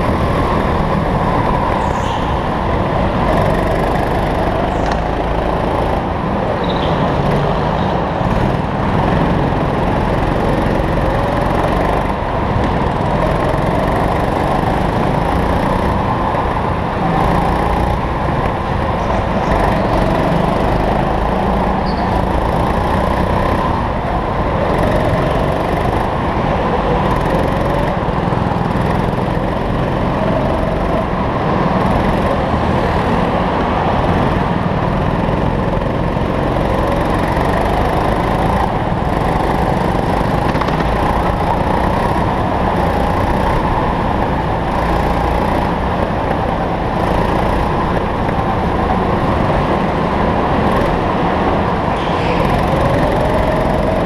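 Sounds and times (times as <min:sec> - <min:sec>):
go-kart engine running hard: 0:00.0 - 0:54.0
loud rushing noise: 0:00.0 - 0:54.0.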